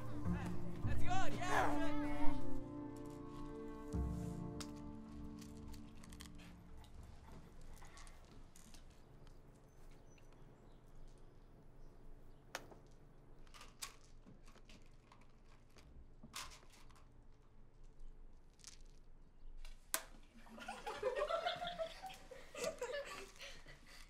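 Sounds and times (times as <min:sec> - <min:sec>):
children giggling: 0:20.4 - 0:24.0.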